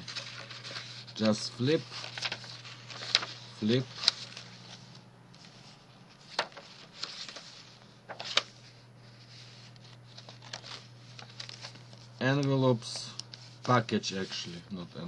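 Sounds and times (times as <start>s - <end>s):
paper rustling: 0.0s - 14.6s
low steady hum: 0.0s - 15.0s.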